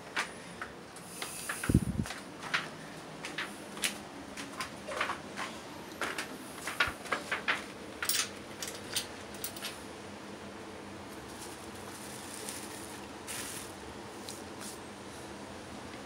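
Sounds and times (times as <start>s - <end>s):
plastic sheeting crinkling: 11.2s - 14.8s.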